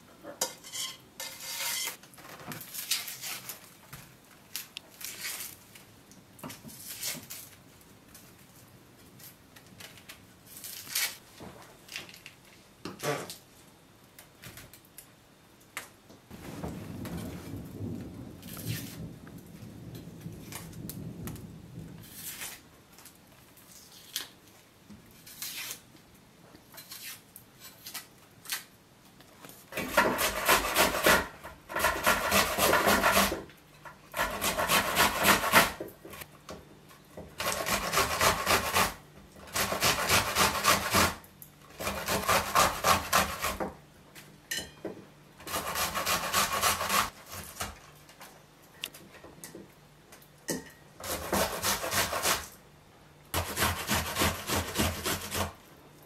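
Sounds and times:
onion grating on metal grater: 0:00.4 - 0:02.0, 0:02.7 - 0:03.6, 0:05.0 - 0:05.6, 0:06.7 - 0:07.5, 0:10.5 - 0:11.2, 0:22.0 - 0:22.6, 0:25.2 - 0:25.8, 0:26.8 - 0:28.6, 0:29.7 - 0:33.5, 0:34.1 - 0:35.8, 0:37.4 - 0:43.6, 0:45.4 - 0:47.8, 0:51.0 - 0:52.6, 0:53.4 - 0:55.6.

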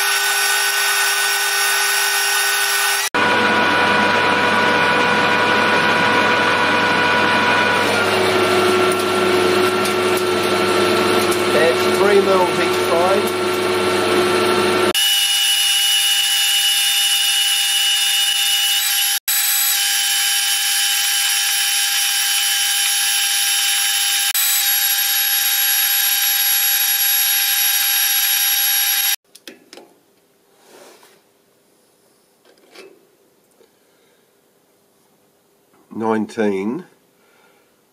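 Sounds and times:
metal lathe whine: 0:00.0 - 0:29.2.

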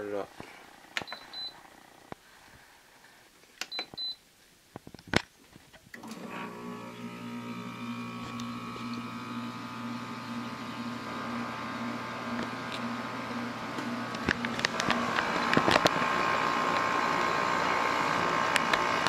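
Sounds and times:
control panel beeps: 0:01.0 - 0:01.5, 0:03.7 - 0:04.2.

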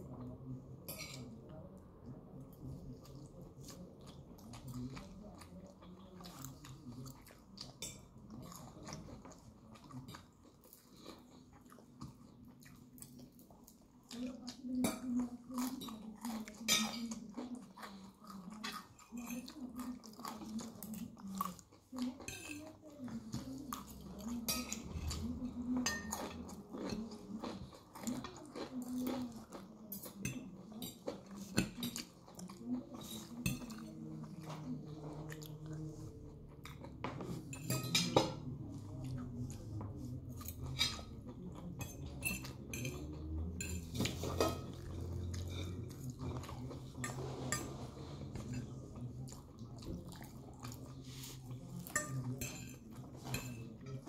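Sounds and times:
chewing: 0:02.3 - 0:54.0
fork scraping ceramic plate: 0:47.0 - 0:48.7.

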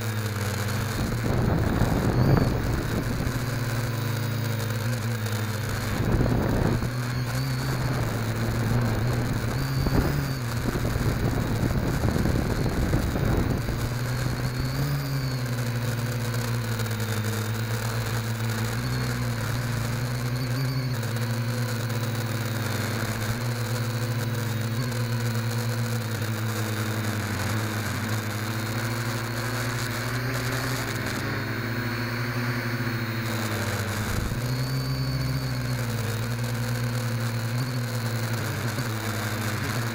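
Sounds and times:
drone motors whining: 0:00.0 - 0:39.9
buffeting wind rush: 0:01.0 - 0:03.4, 0:05.8 - 0:07.0, 0:07.8 - 0:14.4.

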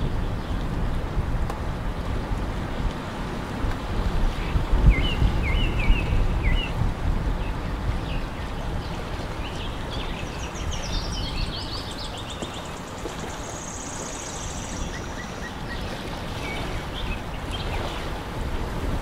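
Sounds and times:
wind and water rushing: 0:00.0 - 0:19.0
birds chirping: 0:07.4 - 0:18.1.

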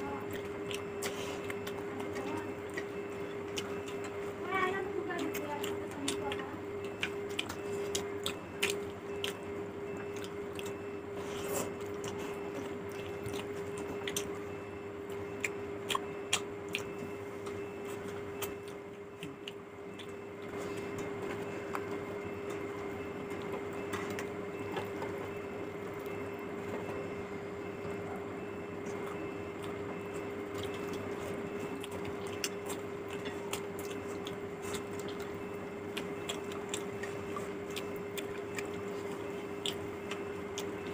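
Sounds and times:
chewing: 0:00.0 - 0:27.1, 0:27.8 - 0:40.9
steady hum: 0:00.0 - 0:40.9
wet squishing of food by hand: 0:00.0 - 0:40.9.

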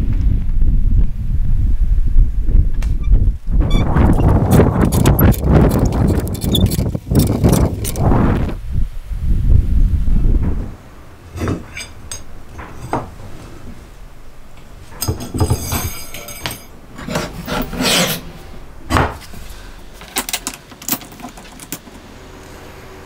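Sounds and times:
metallic scraping of rods: 0:03.7 - 0:08.0, 0:11.2 - 0:18.4
wooden blocks clicking and knocking: 0:04.3 - 0:08.0, 0:20.0 - 0:22.0.

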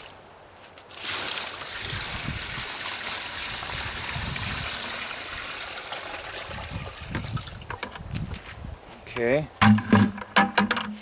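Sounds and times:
water pouring from a bucket: 0:00.9 - 0:07.8.

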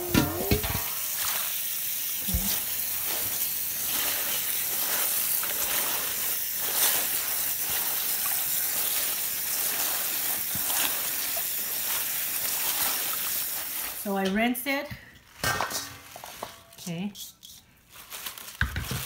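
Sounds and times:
tap water running into sink: 0:00.0 - 0:06.5
wet leaves splashing and rustling: 0:00.0 - 0:14.2, 0:15.3 - 0:17.1, 0:17.8 - 0:19.0.

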